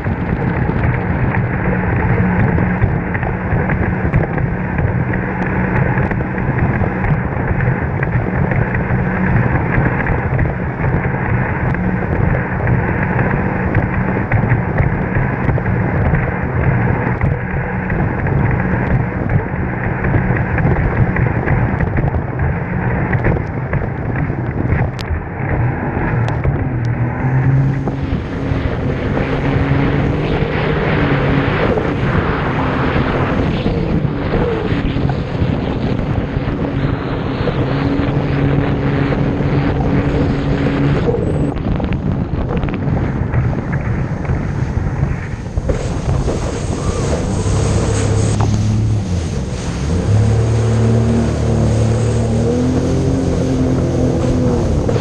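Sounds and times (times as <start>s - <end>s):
jet ski engine droning: 0.0s - 55.0s
wind buffeting microphone: 0.0s - 55.0s.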